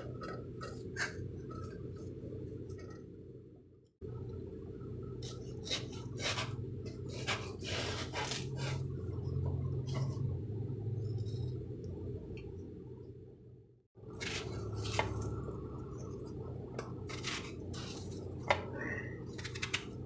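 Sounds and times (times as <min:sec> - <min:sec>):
steady low hum: 0:00.0 - 0:20.0
knife cutting watermelon: 0:05.2 - 0:08.8, 0:14.1 - 0:15.3, 0:16.8 - 0:20.0.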